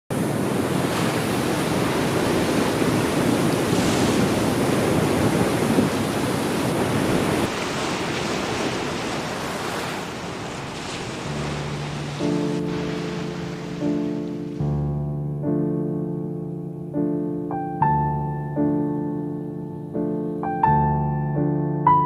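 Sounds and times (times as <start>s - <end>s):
surf breaking on rocks: 0.1s - 14.6s.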